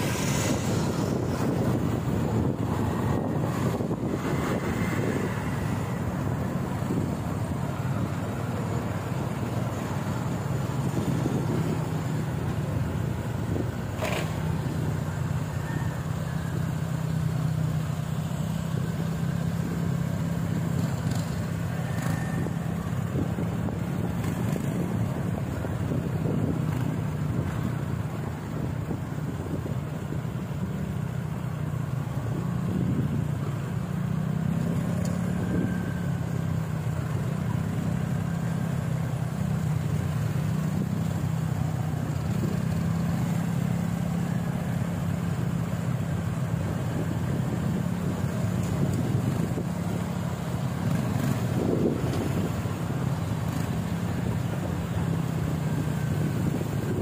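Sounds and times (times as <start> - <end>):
road and wind noise: 0.0 - 57.0
vehicle engine hum: 0.0 - 57.0.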